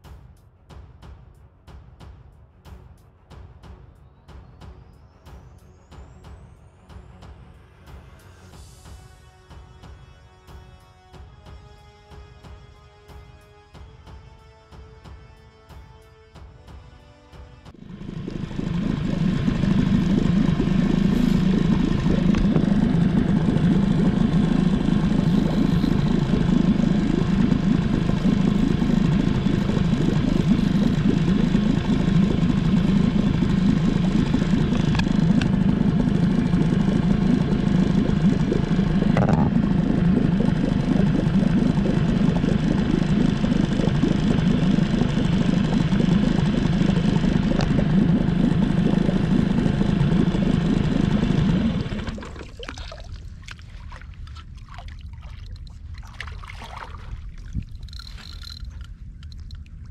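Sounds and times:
outboard motor running: 17.7 - 59.9.

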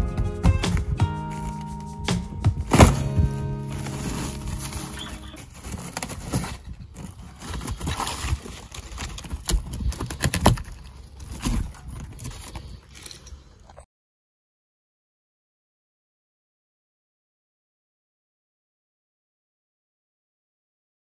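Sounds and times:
plywood crumbling and scraping: 2.6 - 13.3.

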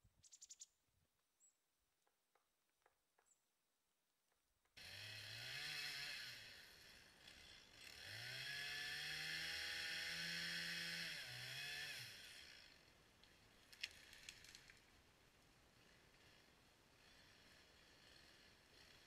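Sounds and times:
chainsaw cutting wood: 4.8 - 14.9, 15.7 - 19.0
wood cracking: 13.6 - 14.9.

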